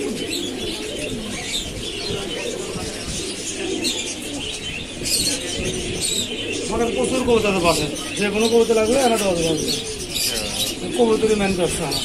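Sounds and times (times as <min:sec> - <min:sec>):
high chirping calls: 0:00.0 - 0:12.0
pigeons cooing: 0:00.0 - 0:12.0.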